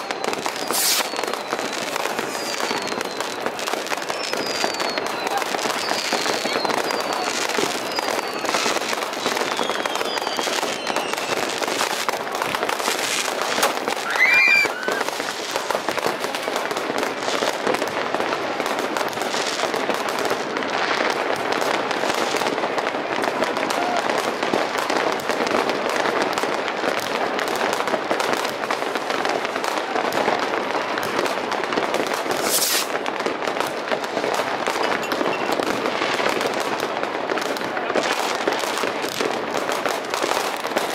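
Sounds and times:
falling firework whistles: 0:00.0 - 0:16.3, 0:32.3 - 0:33.0, 0:34.5 - 0:36.4
whistling firework burst: 0:00.0 - 0:17.9, 0:32.2 - 0:33.0, 0:33.7 - 0:36.7
fireworks crackling and banging: 0:00.0 - 0:40.9.

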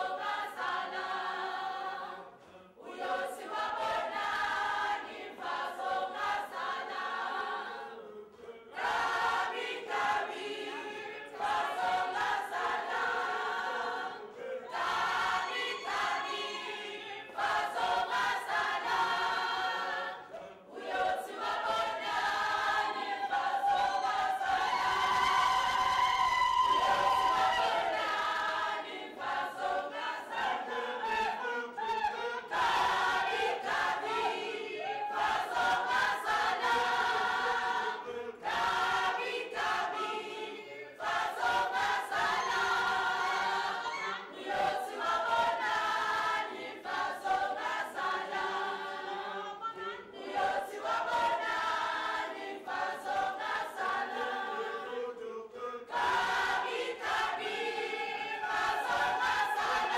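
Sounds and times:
choir singing: 0:00.0 - 0:59.9.

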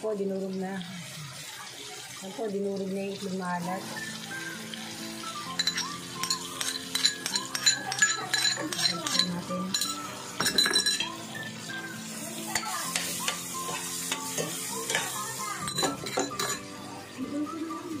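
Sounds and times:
shrimp sizzling in a pan: 0:00.0 - 0:18.0
ladle stirring and clinking on pan: 0:05.5 - 0:11.2, 0:12.5 - 0:16.7
spoon scraping a bowl: 0:05.6 - 0:11.1.

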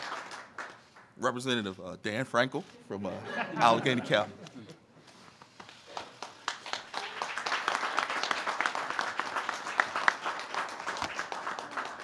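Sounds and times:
people clapping: 0:00.0 - 0:01.2, 0:05.4 - 0:12.0.

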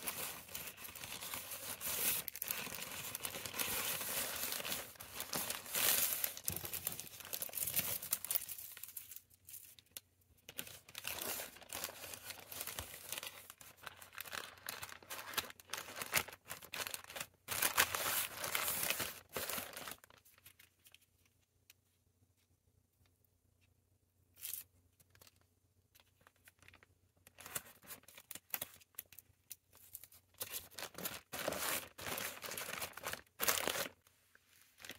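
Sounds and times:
plastic bag crinkling: 0:00.0 - 0:20.9, 0:30.0 - 0:34.0.

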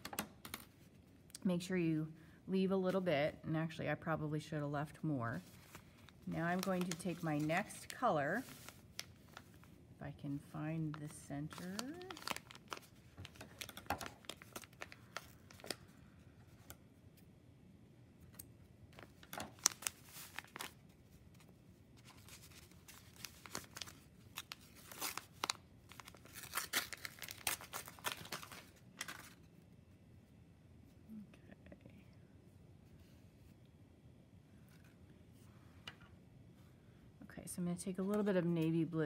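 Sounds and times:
yarn rustling and crinkling: 0:05.3 - 0:09.7, 0:11.0 - 0:15.7.

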